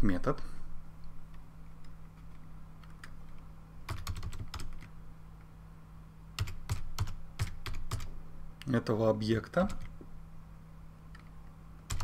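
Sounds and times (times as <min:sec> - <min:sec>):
computer keyboard typing: 0:02.2 - 0:03.2, 0:03.9 - 0:04.9, 0:06.4 - 0:08.1.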